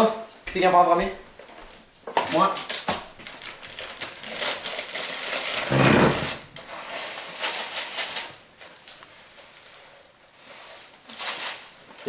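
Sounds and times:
cereal rattling into ceramic bowl: 7.0s - 8.9s.

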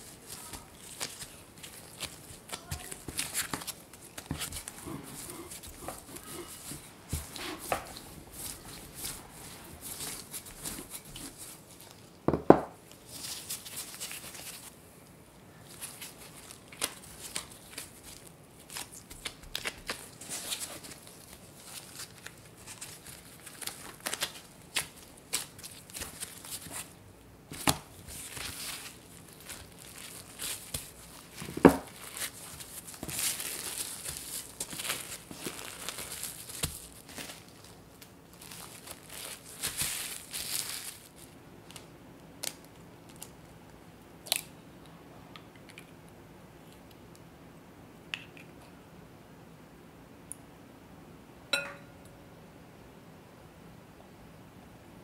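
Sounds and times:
cling film crinkling: 0.0s - 12.1s, 15.6s - 43.5s
rustling of dough being handled: 0.0s - 43.6s
rolling pin rolling dough: 2.3s - 11.5s.

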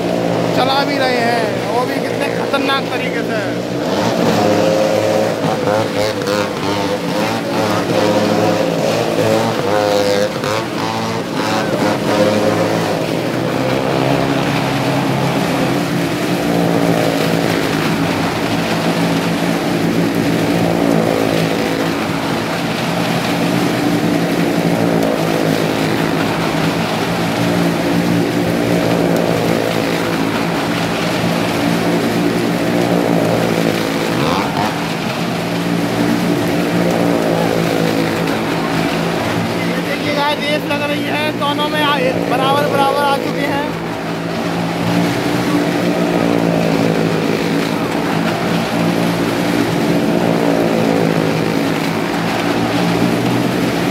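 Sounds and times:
car and motorcycle engines circling: 0.0s - 53.9s.

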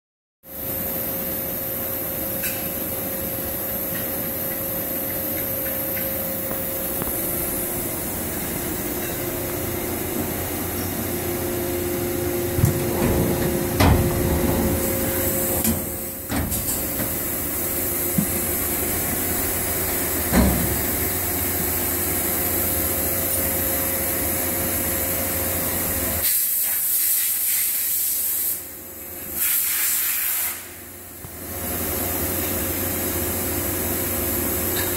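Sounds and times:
shop machinery hum and hiss: 0.4s - 34.9s
machine enclosure doors clunking: 12.1s - 17.5s, 18.1s - 21.2s.

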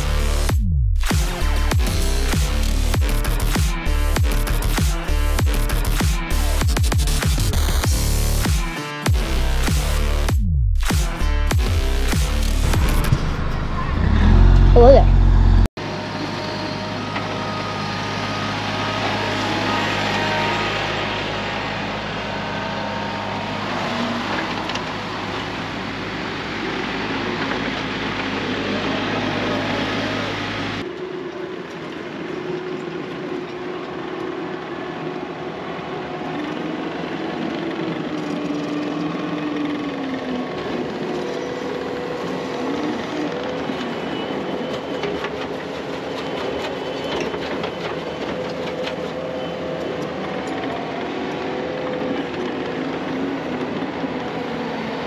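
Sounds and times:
machine engine running: 11.5s - 20.5s.

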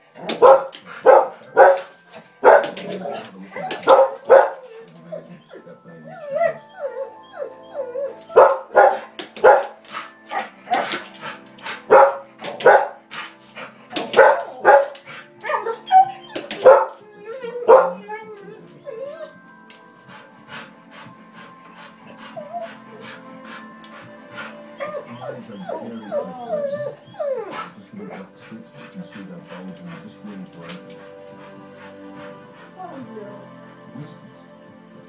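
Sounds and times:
television soundtrack music: 0.0s - 35.0s
dog barking loudly: 0.2s - 2.8s, 3.6s - 4.7s, 8.4s - 9.8s, 11.8s - 13.0s, 14.0s - 17.0s, 17.6s - 18.0s.

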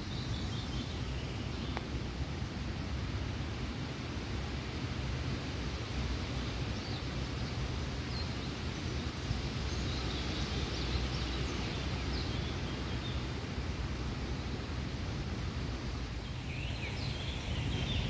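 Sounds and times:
low rumbling hiss: 0.0s - 18.0s.

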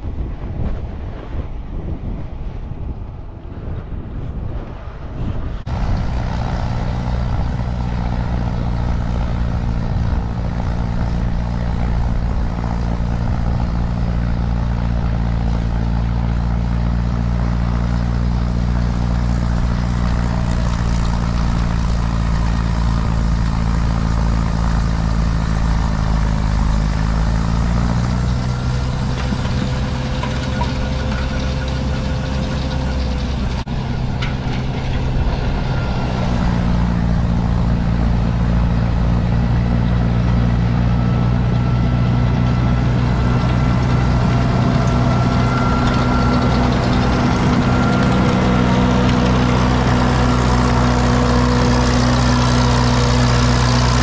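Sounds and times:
wind on microphone: 0.0s - 16.2s
tractor engine running: 5.4s - 54.0s.

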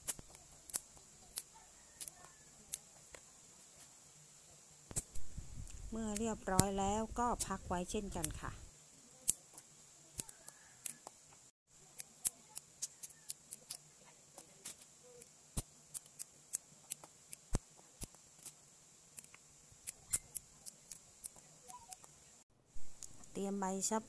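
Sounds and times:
beans snapping by hand: 0.0s - 3.3s, 4.9s - 6.8s, 9.2s - 11.2s, 11.9s - 13.8s, 14.4s - 22.1s.

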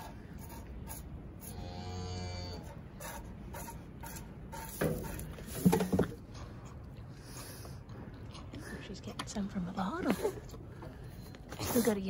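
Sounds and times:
cow mooing: 1.5s - 2.7s.

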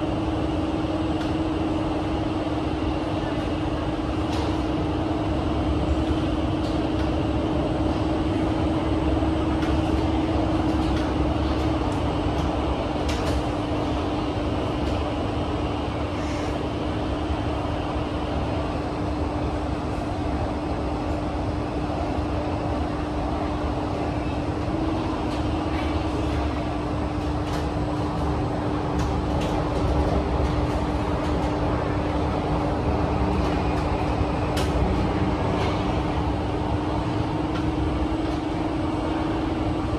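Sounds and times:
steady hum: 0.0s - 39.9s
train wheels rumbling on rail: 0.0s - 39.9s.

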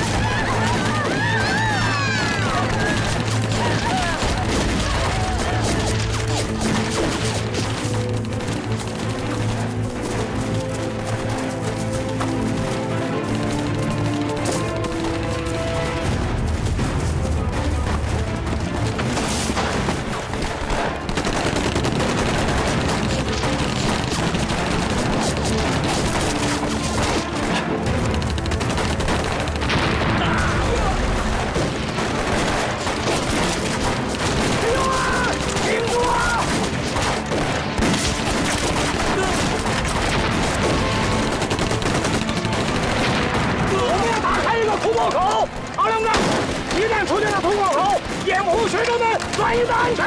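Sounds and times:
background music: 0.0s - 50.0s
rapid gunfire: 0.0s - 50.0s
rifle gunfire: 19.6s - 44.4s
man shouting: 34.6s - 36.5s.

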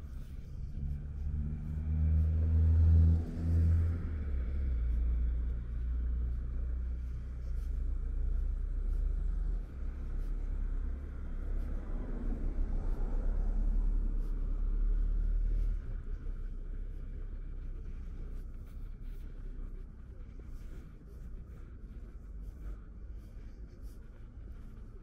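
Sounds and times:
low traffic rumble: 0.0s - 25.0s
vehicle engine passing: 0.6s - 4.9s.

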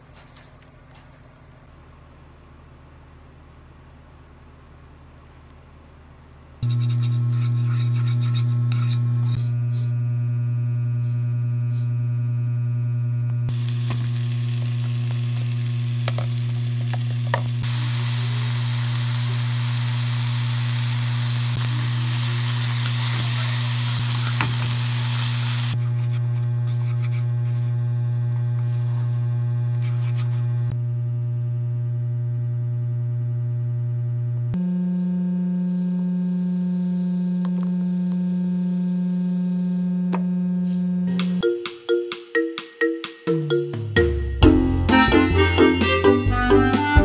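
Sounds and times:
low electrical hum: 0.0s - 41.2s
onions sizzling in frying pan: 13.5s - 25.8s.

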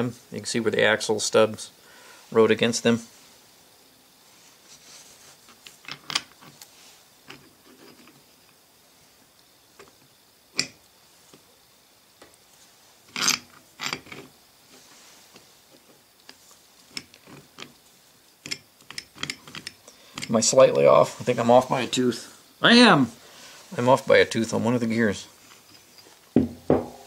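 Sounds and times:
metal parts clicking and clinking: 5.8s - 6.5s, 13.1s - 14.3s, 18.4s - 20.4s.

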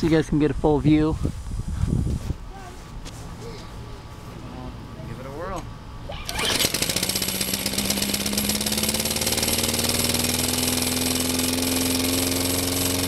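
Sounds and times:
lawn mower engine running: 5.9s - 13.0s.

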